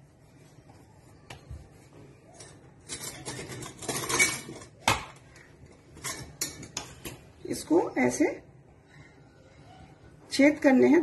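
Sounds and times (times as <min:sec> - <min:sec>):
kitchen utensils clattering: 0:02.3 - 0:07.3.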